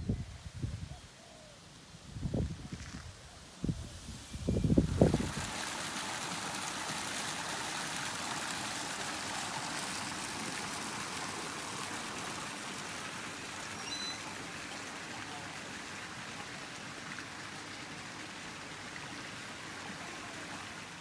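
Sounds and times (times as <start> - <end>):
waterfall pouring into pond: 4.7 - 21.0.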